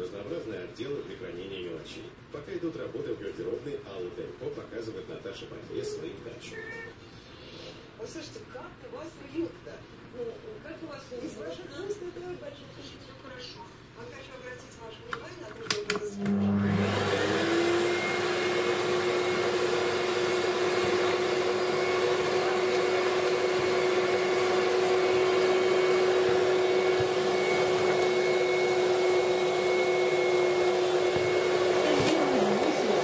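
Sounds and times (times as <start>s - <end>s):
vacuum cleaner running: 15.9s - 33.0s.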